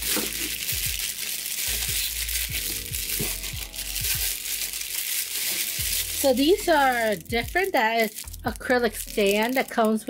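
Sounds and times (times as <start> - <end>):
packing material crinkling: 0.0 - 10.0
lofi music with bass beat: 1.8 - 4.4.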